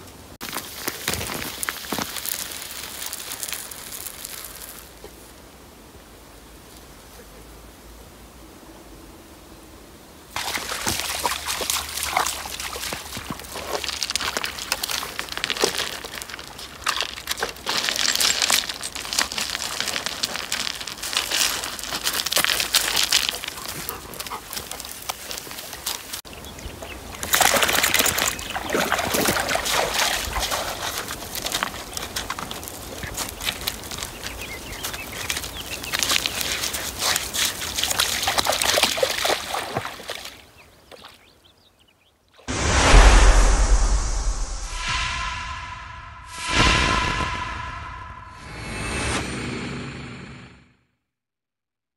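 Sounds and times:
pebbles crunching underfoot: 0.4 - 5.2, 10.4 - 38.8
shallow water sloshing: 10.4 - 20.5.

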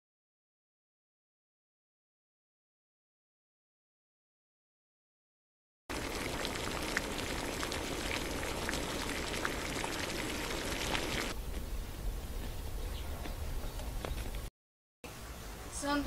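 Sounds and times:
liquid boiling in a pot: 5.9 - 11.4.

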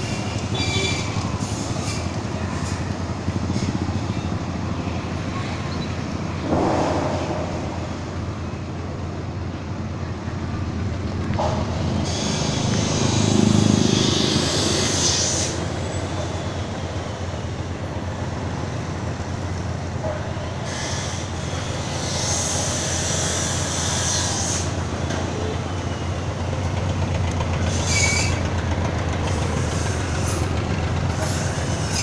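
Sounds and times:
passing traffic: 0.0 - 32.0
vehicle engine and road noise: 0.0 - 32.0.

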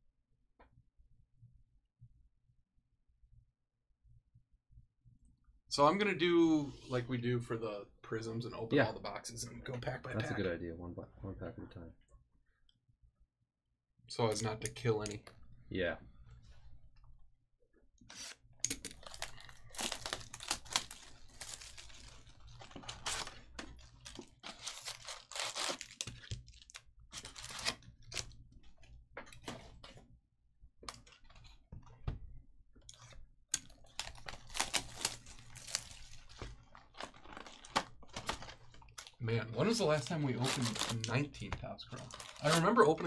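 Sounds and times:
foil packs crinkling: 18.9 - 28.3, 33.7 - 41.3, 41.9 - 42.8
cardboard tearing: 19.0 - 28.3, 34.0 - 38.7, 42.0 - 42.7.

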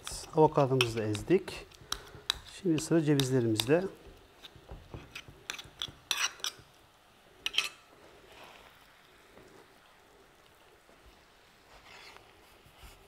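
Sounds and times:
walnuts tapping on wooden board: 0.8 - 6.0.

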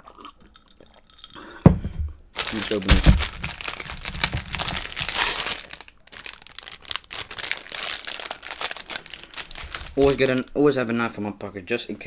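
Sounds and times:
plastic wrapper crinkling: 2.3 - 10.6.

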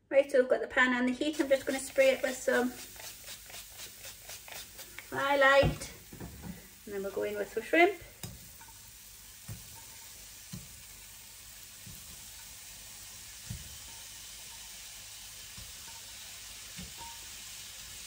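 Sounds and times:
shrimp sizzling in a frying pan: 1.2 - 18.0.

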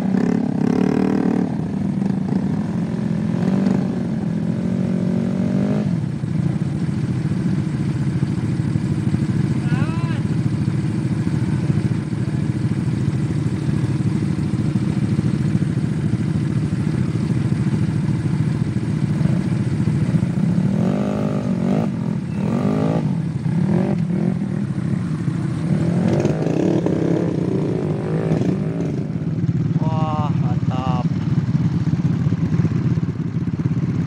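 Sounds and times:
scooter engines running: 0.0 - 34.0
scooter engine revving: 12.6 - 34.0.

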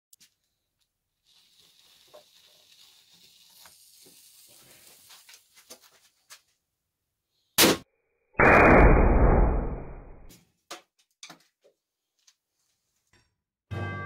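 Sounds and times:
fuse hissing and crackling: 0.2 - 6.5
firecracker bang: 8.4 - 10.3.

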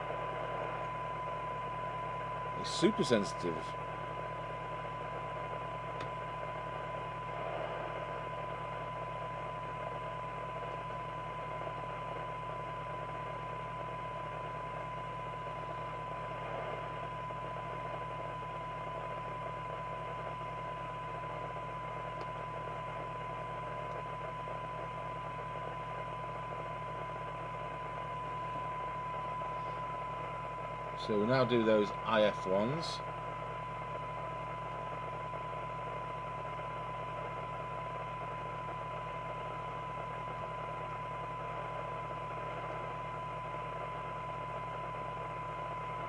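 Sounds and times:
low hum: 0.0 - 46.0
steady test tone: 0.0 - 46.0.

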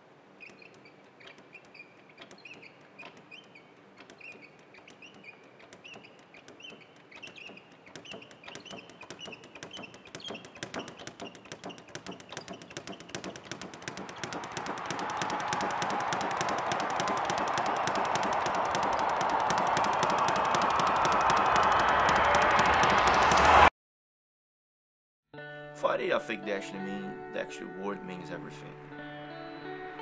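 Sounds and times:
speed bag being punched: 6.4 - 23.7
rush of noise: 18.7 - 23.7.

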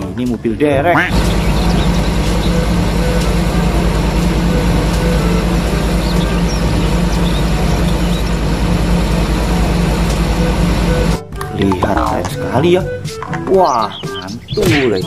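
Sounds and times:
diesel engine running: 1.1 - 11.2.

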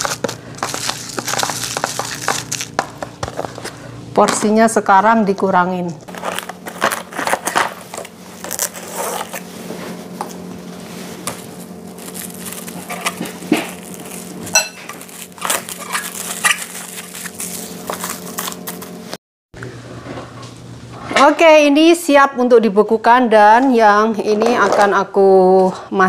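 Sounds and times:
plastic bags crinkling: 0.0 - 3.7, 6.1 - 9.6, 11.0 - 19.0.

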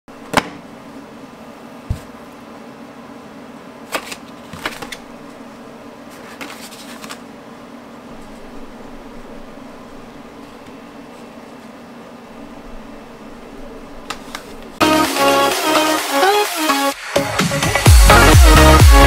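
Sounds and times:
steady low hum: 0.1 - 14.8
paper card taps and rustles: 6.2 - 7.2.

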